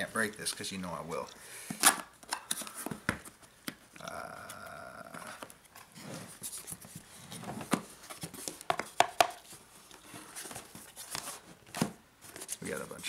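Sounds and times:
cardboard scraping and rustling: 5.2 - 13.0.

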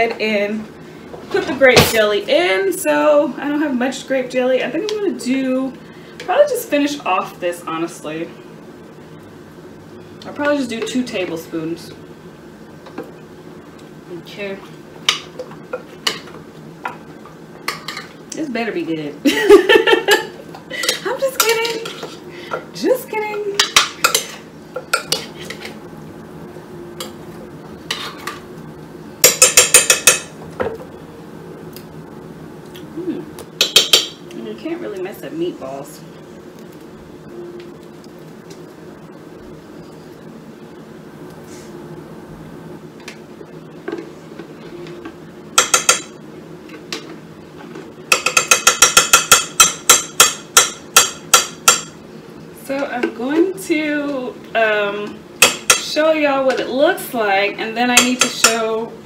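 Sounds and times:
sharp taps on a pot: 48.1 - 51.9.

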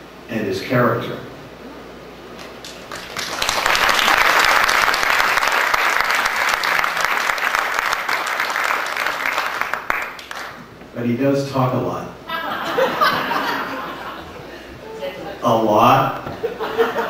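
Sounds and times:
audience applauding: 2.6 - 10.6.

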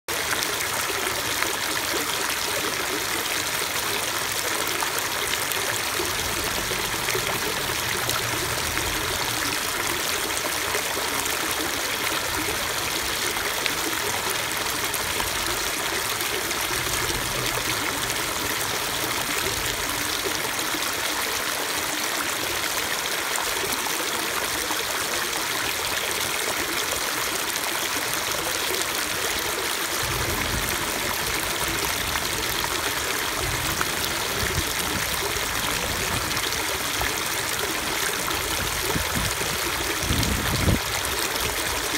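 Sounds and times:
stream splashing over rocks: 0.1 - 41.9.

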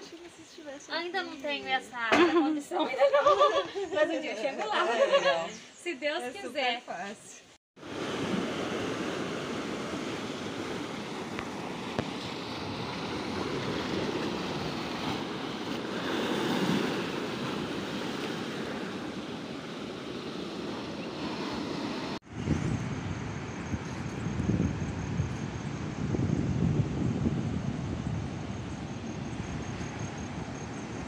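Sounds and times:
ocean waves rushing: 7.8 - 23.8
wind buffeting microphone: 7.8 - 31.0.

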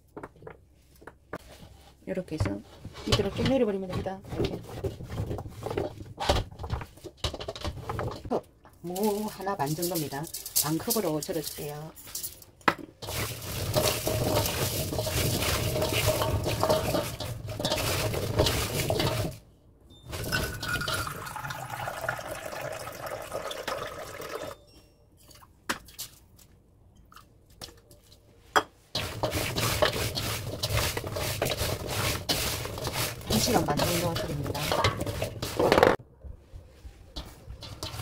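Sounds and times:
wet radish clattering in metal bowl: 2.3 - 19.4, 20.1 - 24.6, 28.9 - 36.0, 37.2 - 38.0.

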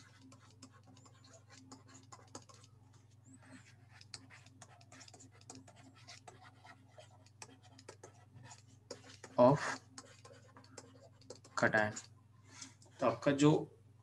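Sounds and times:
stylus tapping on drawing tablet: 0.0 - 2.7, 3.9 - 12.1.

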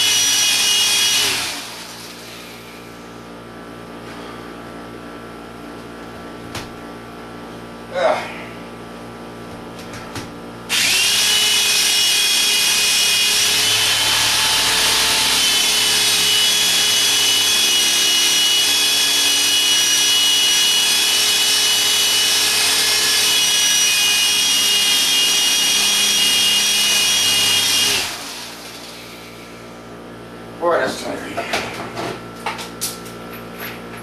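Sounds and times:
electric drill boring into concrete: 0.0 - 2.4, 10.7 - 29.6.

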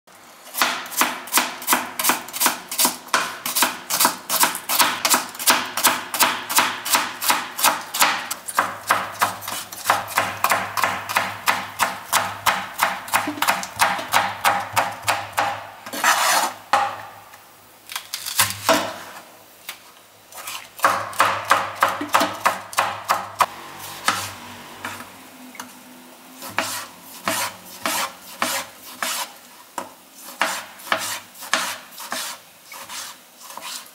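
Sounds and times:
knife scraping board: 0.6 - 5.4, 6.9 - 10.3, 13.1 - 16.7, 20.3 - 21.0, 23.8 - 25.0, 26.4 - 29.4, 30.2 - 33.9
knife chopping on cutting board: 0.6 - 17.2, 20.8 - 25.0, 26.4 - 33.8.

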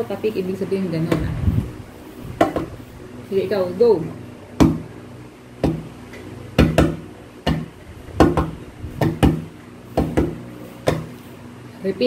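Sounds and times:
steady low hum: 0.0 - 12.0
hand tapping on table: 6.6 - 9.4.

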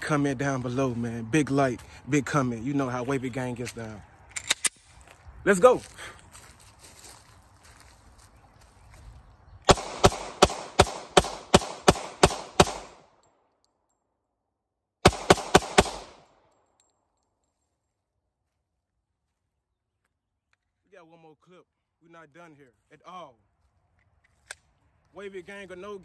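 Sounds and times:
pistol gunshots: 9.7 - 13.1, 15.0 - 16.3.

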